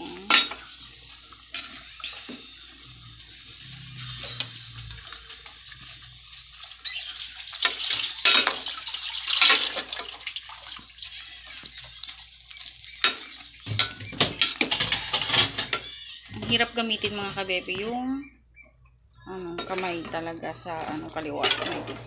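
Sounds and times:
broth sloshing in a pot: 0.0s - 15.8s.

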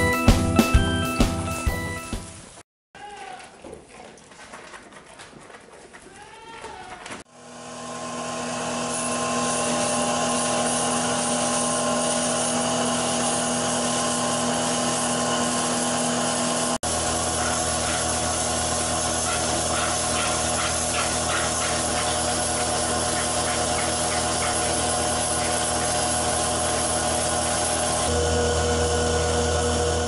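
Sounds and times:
goats bleating: 6.1s - 7.1s
vacuum pump humming and whining: 7.3s - 30.0s.

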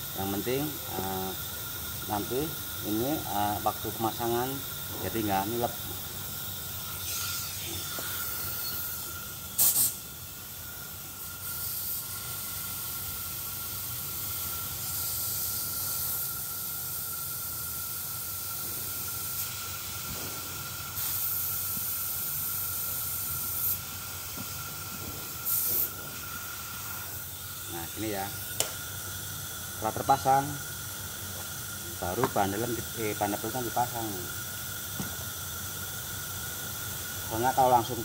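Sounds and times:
compressed air hissing: 0.0s - 38.0s
loud air spurts: 7.0s - 10.0s, 18.4s - 23.9s.

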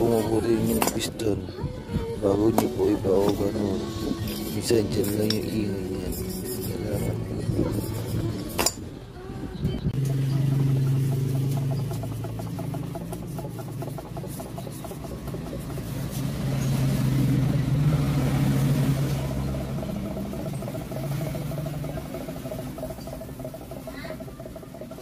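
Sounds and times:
single-cylinder engine running: 0.0s - 25.0s
engine knocking: 10.0s - 25.0s.

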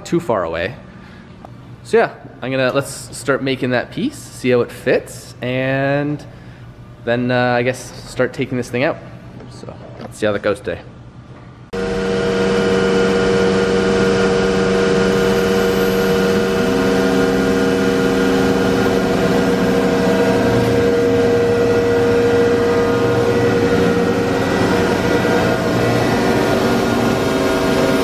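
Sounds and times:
low machine tone: 11.1s - 28.0s
router machine humming: 11.8s - 28.0s.

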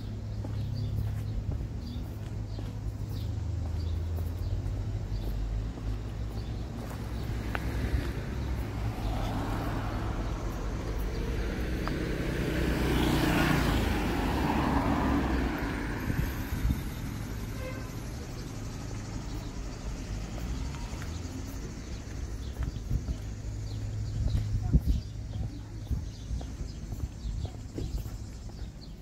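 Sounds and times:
car passing by: 7.0s - 18.0s.

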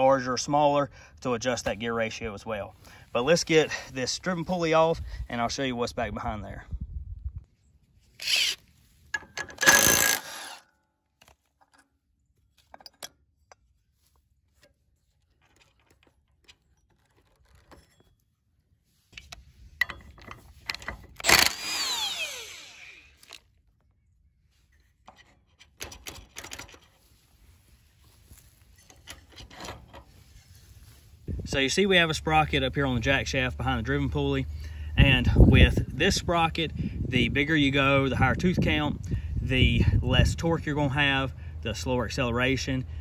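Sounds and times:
metallic scraping and rattling: 8.2s - 10.7s, 11.4s - 23.4s, 24.6s - 31.4s.

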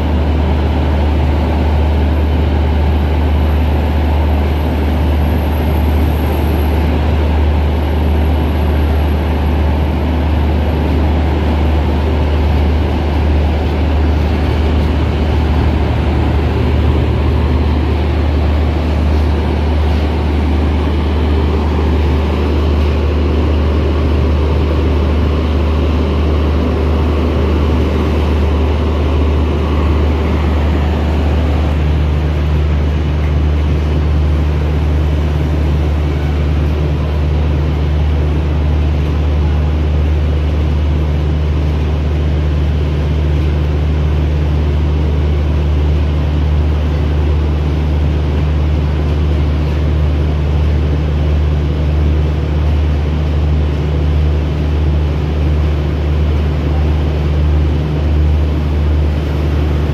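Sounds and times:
diesel engines idling: 0.0s - 59.9s.

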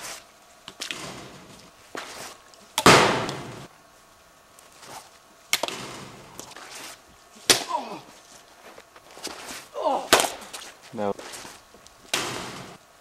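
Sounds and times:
ball being hit smack: 2.8s - 3.6s, 10.0s - 10.6s, 12.1s - 12.7s.

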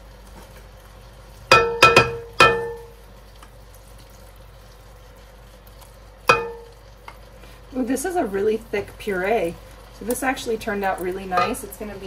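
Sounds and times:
spoon knocking against rim: 1.5s - 2.9s, 6.3s - 6.7s.

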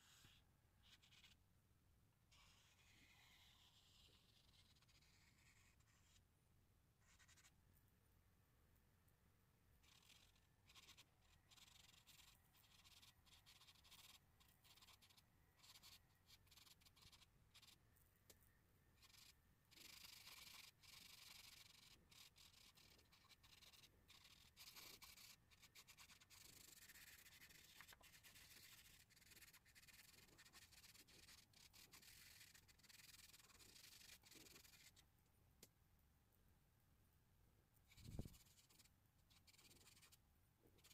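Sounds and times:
charcoal scratching on paper: 0.0s - 1.4s, 2.3s - 6.3s, 7.0s - 7.6s, 9.8s - 17.8s, 19.0s - 35.1s, 37.9s - 40.2s.

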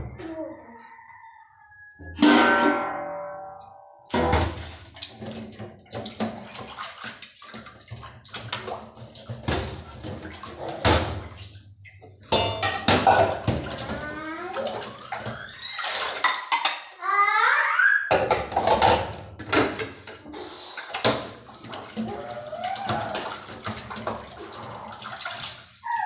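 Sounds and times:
dishes clinking in metal sink: 2.1s - 6.8s, 7.7s - 15.4s, 16.1s - 16.9s, 18.1s - 20.3s
water splashing: 4.1s - 16.7s, 19.5s - 26.0s.

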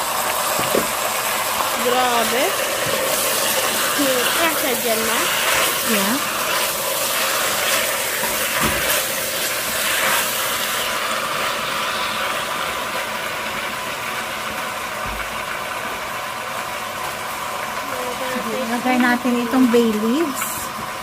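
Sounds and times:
meat sizzling in hot oil: 0.0s - 21.0s
spatula stirring in a pot: 2.5s - 11.0s.

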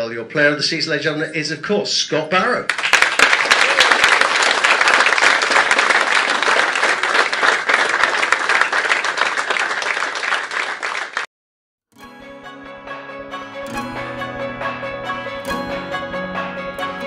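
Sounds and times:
people clapping: 2.7s - 11.3s.

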